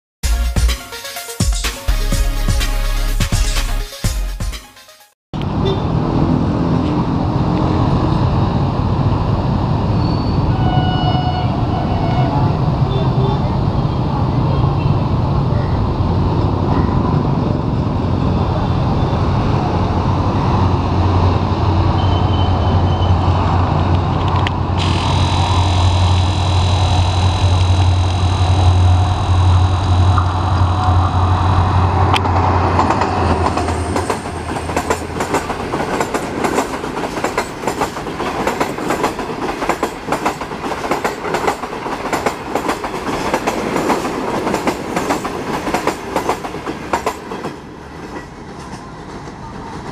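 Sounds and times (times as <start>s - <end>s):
diesel locomotive engine drone: 5.4s - 49.9s
high whine: 15.4s - 34.5s
train wheels clickety-clack: 32.1s - 49.9s.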